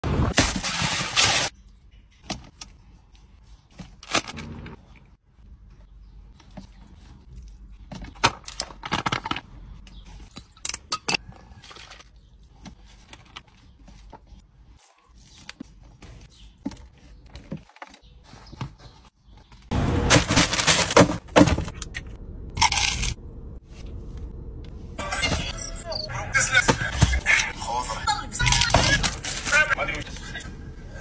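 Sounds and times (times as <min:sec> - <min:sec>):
foil container rustling and clinking: 0:20.1 - 0:21.2.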